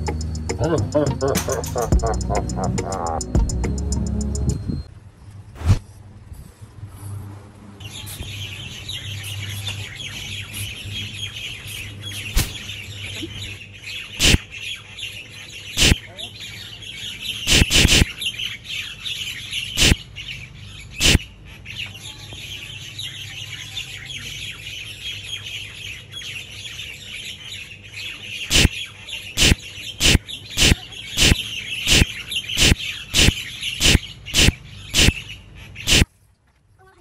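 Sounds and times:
birds chirping: 0.0s - 4.9s, 7.8s - 36.1s
sharp clicks: 14.2s - 14.4s, 15.8s - 16.0s, 17.5s - 18.0s, 19.8s - 20.0s, 28.5s - 28.7s, 29.4s - 35.2s, 35.9s - 36.1s.

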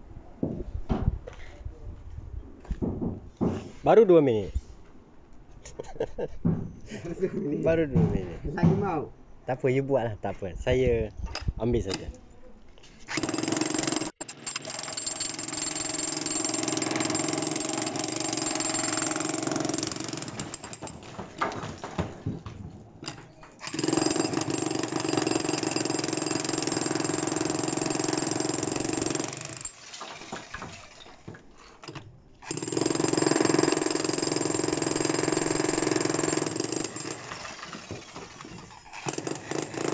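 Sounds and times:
demolition hammer pounding concrete: 13.2s - 31.4s, 32.5s - 39.9s.

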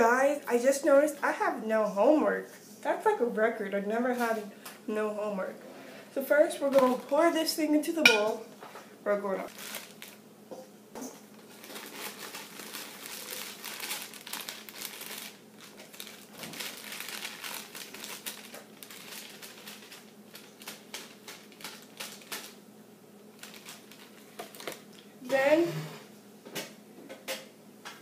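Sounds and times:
plastic bag crinkling: 6.2s - 7.6s, 9.4s - 10.2s, 11.3s - 22.6s, 23.3s - 25.1s.

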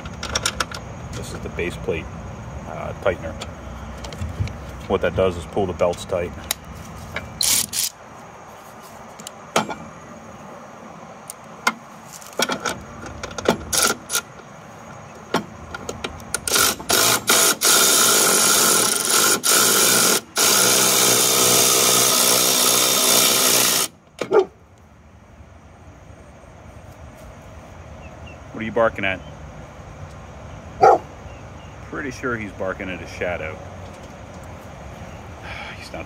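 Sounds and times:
metallic clicks and knocks: 0.0s - 0.9s
power tool running: 16.4s - 23.9s.

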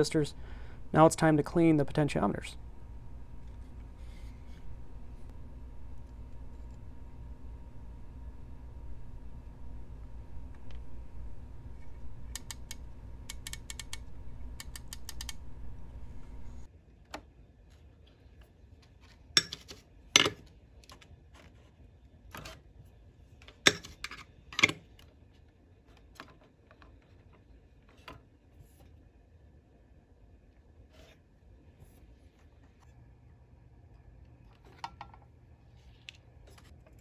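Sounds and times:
steady low hum: 0.0s - 19.4s
potentiometer shafts clicking: 12.3s - 15.5s.

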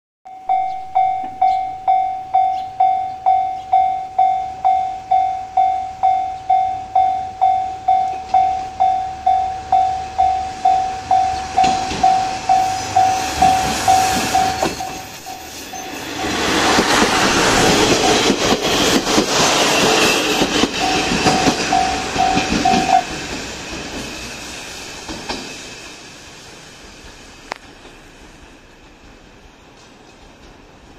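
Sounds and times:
level crossing bell dinging: 0.3s - 16.0s, 20.8s - 23.0s
diesel railcar engine: 0.4s - 30.9s
wheels clattering over rail joints: 10.6s - 24.2s.

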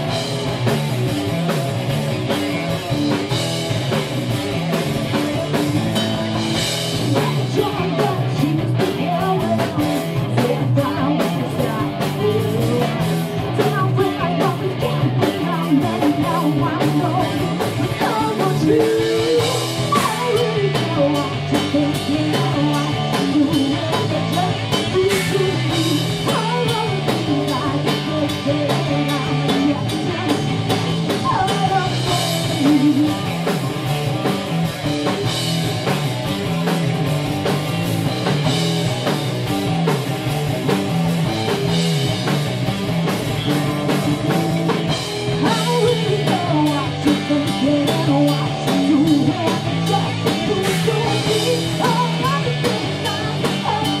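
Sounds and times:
bass guitar: 0.0s - 54.0s
distorted electric guitar: 0.0s - 54.0s
drum kit: 0.0s - 54.0s
woman singing: 5.5s - 33.6s, 45.4s - 54.0s.

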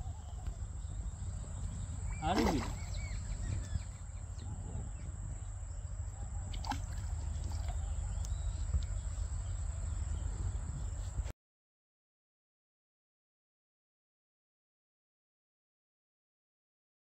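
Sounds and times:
faint chirps: 0.0s - 11.2s.

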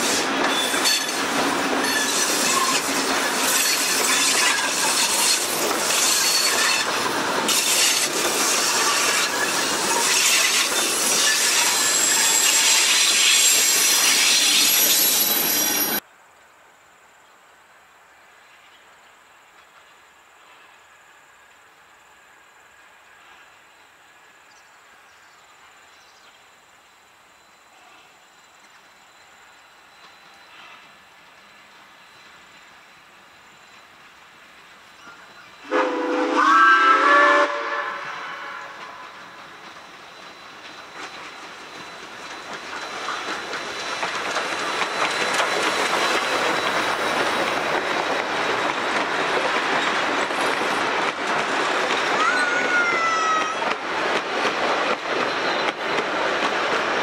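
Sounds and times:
train passing: 0.0s - 16.0s, 26.6s - 57.0s
wheels clacking over rail joints: 0.0s - 16.0s, 38.8s - 57.0s.

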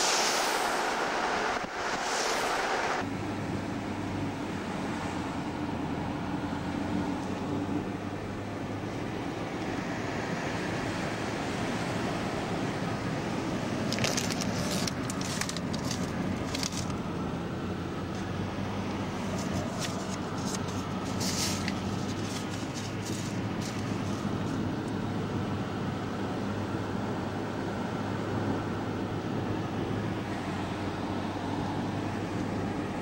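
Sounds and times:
engine and road noise: 0.0s - 33.0s.

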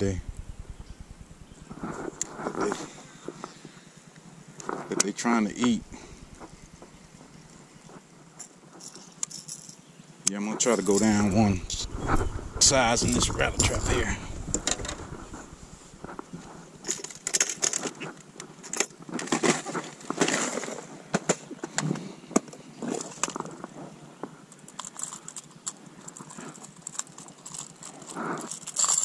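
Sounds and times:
fishing lures rattling in plastic boxes: 24.8s - 29.0s.

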